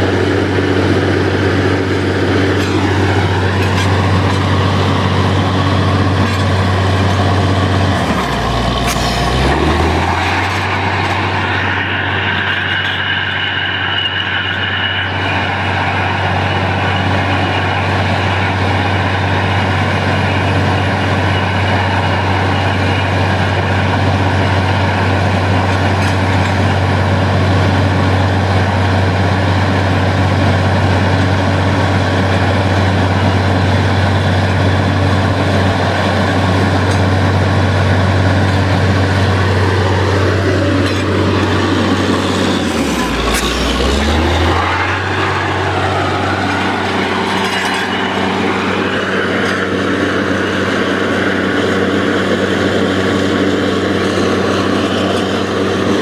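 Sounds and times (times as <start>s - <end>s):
drilling rig deep drone: 0.0s - 56.0s.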